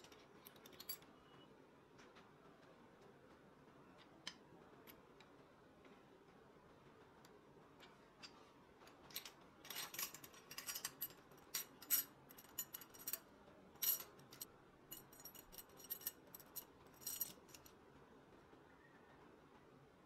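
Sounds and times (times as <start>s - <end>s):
metal chain links clinking: 9.0s - 13.2s, 13.8s - 17.7s.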